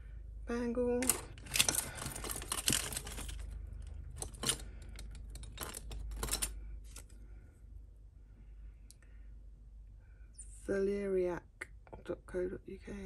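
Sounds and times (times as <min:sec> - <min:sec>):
metal jewellery clinking and rattling: 0:01.0 - 0:07.2.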